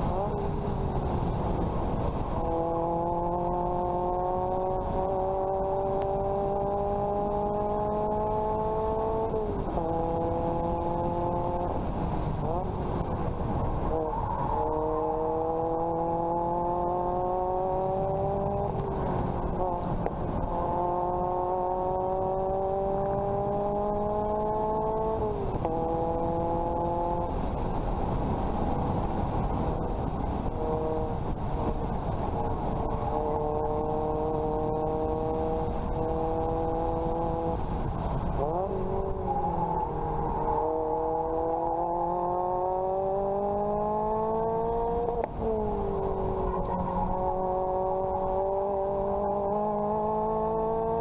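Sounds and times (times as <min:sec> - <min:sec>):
car engine accelerating: 0:00.0 - 0:51.0
heavy wind: 0:00.0 - 0:51.0
road rumble: 0:00.0 - 0:51.0.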